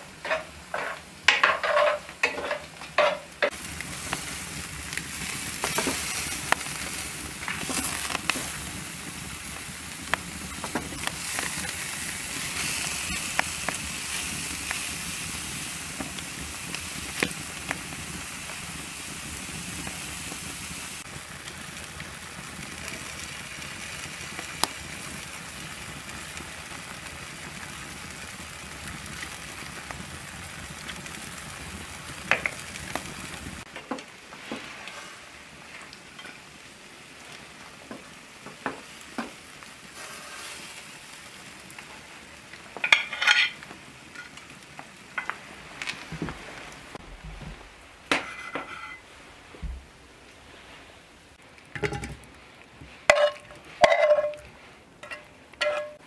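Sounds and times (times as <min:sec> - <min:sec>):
meat sizzling on a grill: 0:00.0 - 0:49.8, 0:50.4 - 0:56.0
utensils clattering: 0:00.2 - 0:03.5, 0:42.8 - 0:43.6, 0:53.1 - 0:56.0.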